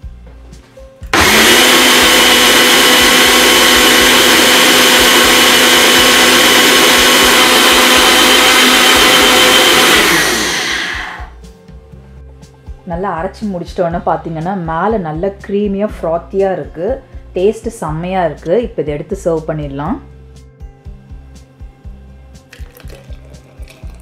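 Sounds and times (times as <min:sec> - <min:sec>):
blender motor running: 0:01.1 - 0:11.4, 0:22.6 - 0:24.0.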